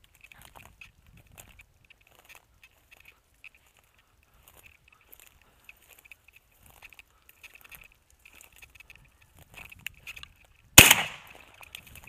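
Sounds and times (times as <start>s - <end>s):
footsteps crunching through dry grass: 0.0s - 12.0s
loud shotgun shot: 10.8s - 11.4s.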